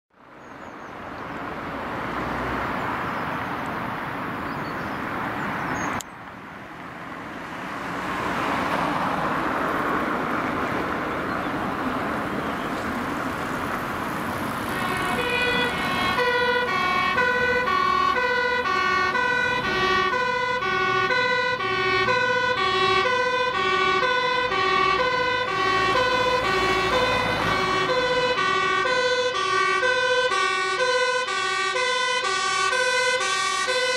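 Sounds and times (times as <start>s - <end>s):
diesel engine: 0.2s - 33.9s
two-tone siren: 14.6s - 33.9s.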